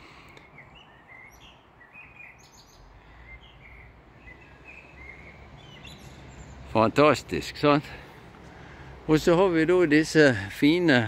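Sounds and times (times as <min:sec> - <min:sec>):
blackbird singing: 0:00.3 - 0:07.7.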